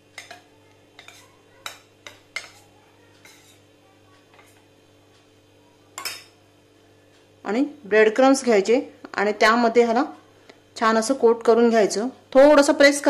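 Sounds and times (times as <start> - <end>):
metal spoon scraping steel bowl: 1.0 - 1.3, 3.2 - 3.6.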